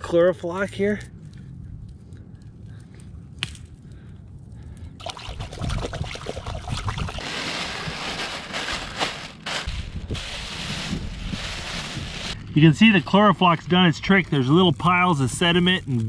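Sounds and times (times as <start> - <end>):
emergency blanket crinkling: 7.2 - 12.4.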